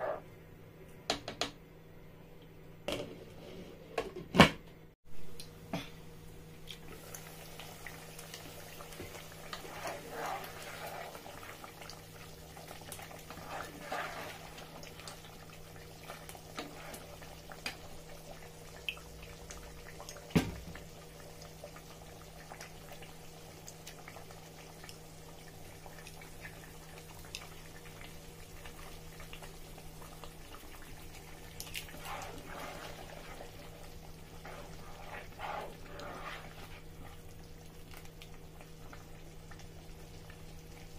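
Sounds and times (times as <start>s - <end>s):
sauce bubbling in a pot: 5.3s - 40.9s
spoon stirring sauce: 31.6s - 37.2s.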